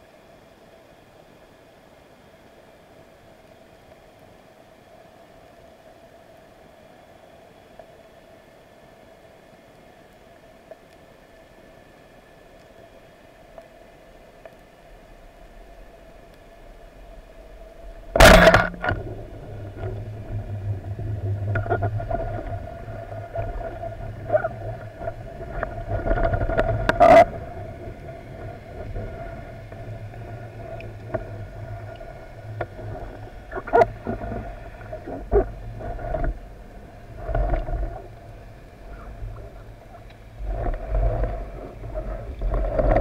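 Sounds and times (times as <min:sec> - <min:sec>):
underwater hum and rumble: 0:00.0 - 0:43.0
sharp clicks and knocks: 0:18.2 - 0:19.1.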